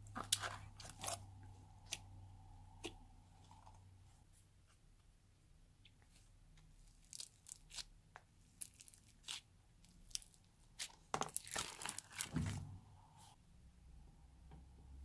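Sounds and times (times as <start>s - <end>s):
slime crackling and popping: 7.0s - 7.9s, 8.6s - 12.3s.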